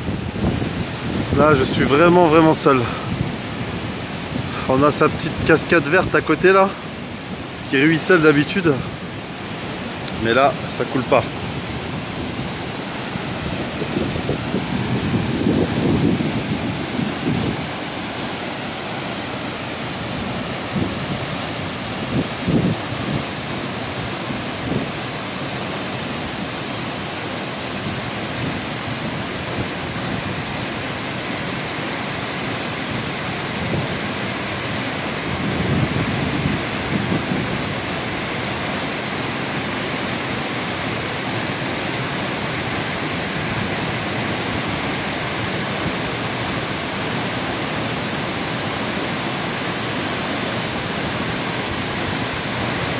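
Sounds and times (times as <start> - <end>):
waterfall rushing: 0.0 - 52.9.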